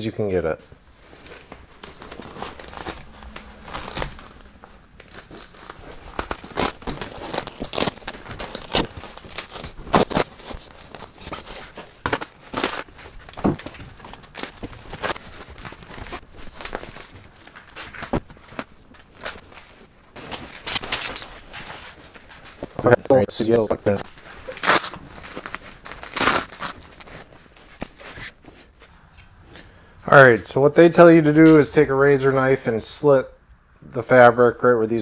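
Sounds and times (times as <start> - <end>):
fabric crinkling: 0.7 - 28.9
velcro ripping apart: 1.2 - 22.6, 23.9 - 28.4.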